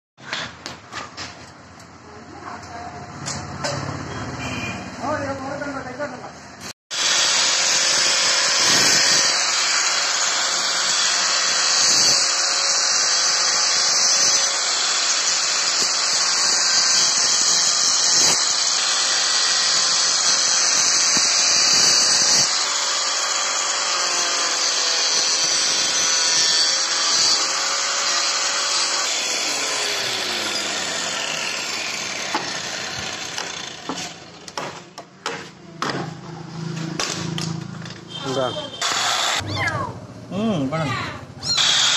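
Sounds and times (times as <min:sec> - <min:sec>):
angle grinder cutting pipe: 0:06.9 - 0:34.6, 0:38.2 - 0:39.5, 0:41.4 - 0:41.9
motor winding down: 0:07.0 - 0:34.2, 0:41.4 - 0:41.9.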